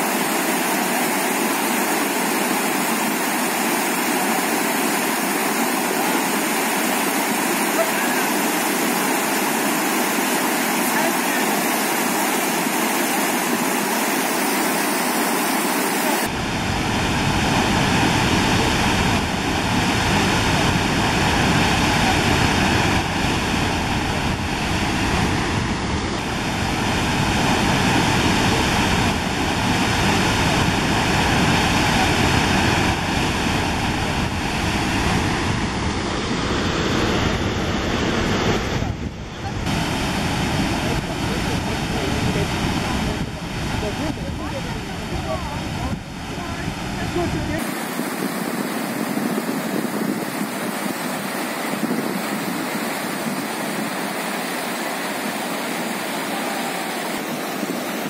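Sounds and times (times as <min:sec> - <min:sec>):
river rapids rushing over rocks: 0:00.0 - 0:17.0, 0:43.6 - 0:58.0.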